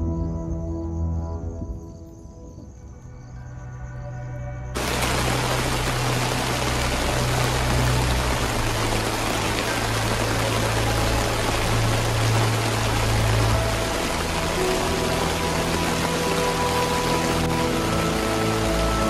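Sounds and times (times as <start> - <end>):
heavy rain on a tarp: 4.8 - 19.0.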